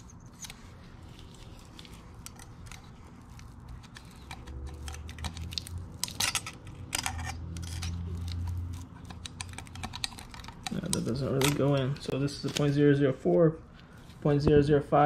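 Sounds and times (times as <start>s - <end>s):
metal blades clicking and scraping: 1.7s - 12.7s.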